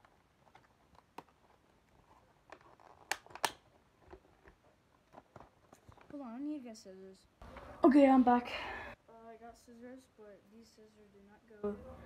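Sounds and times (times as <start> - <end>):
plastic toy and packaging clicks: 2.4 - 4.2.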